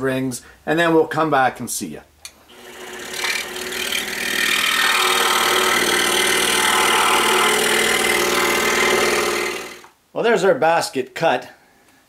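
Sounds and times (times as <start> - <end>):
scroll saw humming: 2.5 - 9.9.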